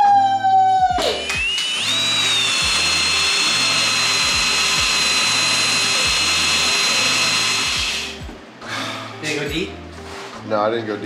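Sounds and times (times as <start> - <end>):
drill boring through sheet metal: 1.2 - 8.2.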